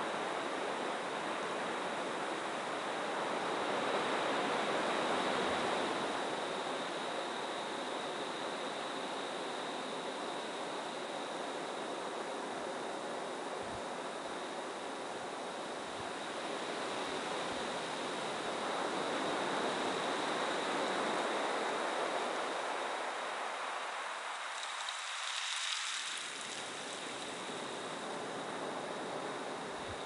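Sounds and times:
ocean waves breaking on beach: 14.8 - 29.9.

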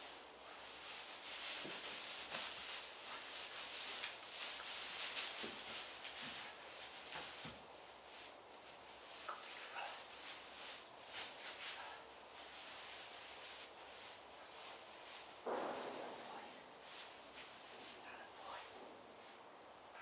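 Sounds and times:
rustling in straw bedding: 0.0 - 20.0
soft thuds: 15.4 - 16.4.

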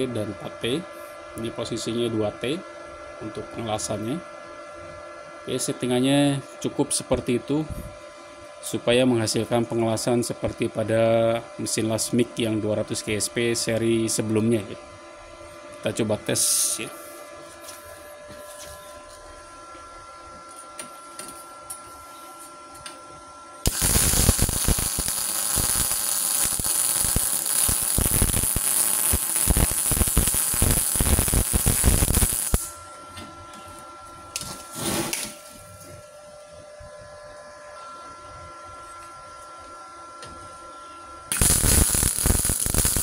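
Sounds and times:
welding arc crackling: 23.6 - 32.8, 41.3 - 43.0.

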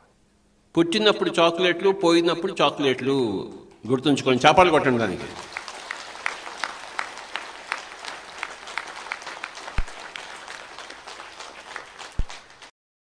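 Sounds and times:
audience applauding: 4.6 - 12.7.

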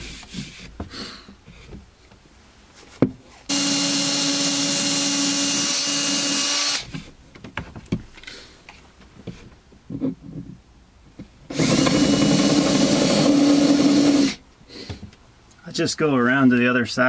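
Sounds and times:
cordless drill boring: 3.5 - 6.9, 11.5 - 14.4
light knocks and handling: 6.9 - 11.4.

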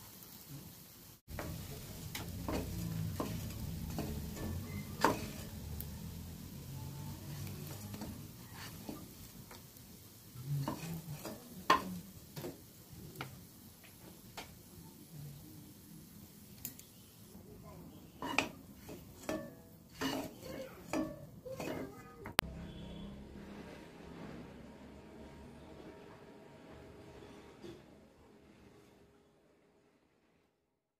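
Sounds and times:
fritters sizzling in oil: 0.0 - 23.0
spatula tapping against pan: 1.3 - 5.9, 10.6 - 12.6, 18.2 - 21.8
wooden spatula stirring: 1.3 - 9.7, 10.5 - 12.6, 18.2 - 22.4.

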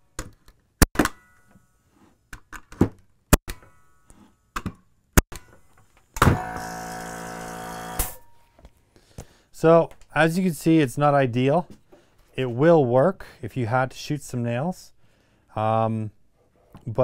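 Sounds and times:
air compressor motor humming: 6.3 - 8.2.

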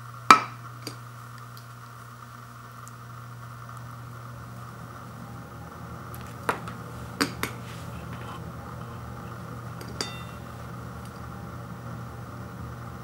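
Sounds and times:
steady low hum: 0.0 - 13.0
ceramic plate ringing: 9.8 - 10.6.

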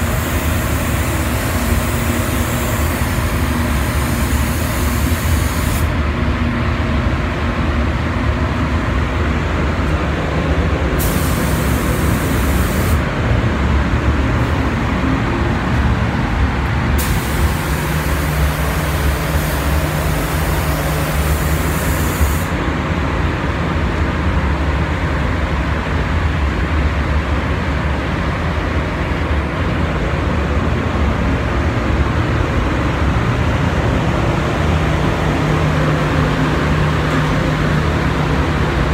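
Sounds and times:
spray gun air hiss: 0.0 - 6.0, 11.0 - 13.1, 17.0 - 22.6
ventilation fans droning: 0.0 - 38.9.

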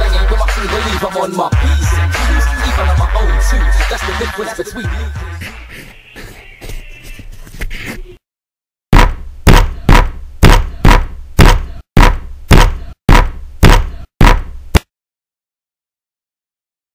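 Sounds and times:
hip-hop track: 0.0 - 6.0.

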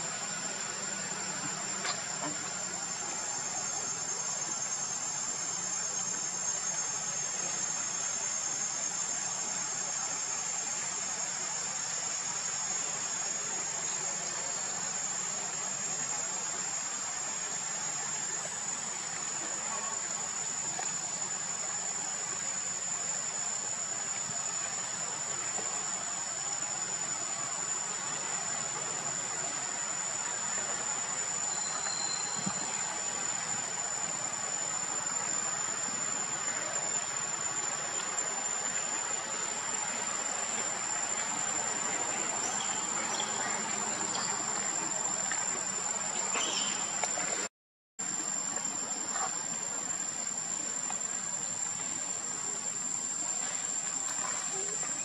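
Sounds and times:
even hiss: 0.0 - 55.0
insects buzzing: 0.0 - 55.0.

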